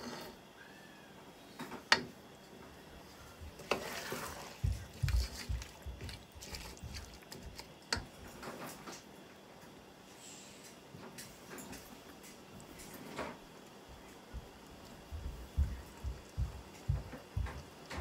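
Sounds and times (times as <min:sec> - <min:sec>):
wooden spoon stirring in pot: 0:03.0 - 0:08.4
dull low thumps: 0:15.1 - 0:17.7.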